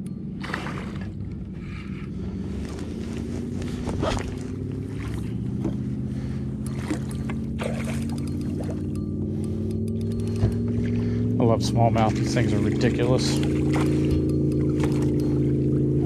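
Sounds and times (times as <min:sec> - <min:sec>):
boat motor droning: 0:00.0 - 0:16.0
knocks and splashes: 0:00.4 - 0:01.4, 0:03.8 - 0:05.9, 0:06.6 - 0:09.0, 0:10.1 - 0:16.0.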